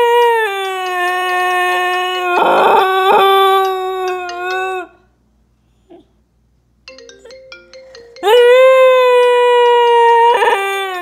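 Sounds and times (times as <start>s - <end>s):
husky howling: 0.0s - 5.0s, 8.2s - 11.0s
phone ringtone: 6.9s - 8.8s.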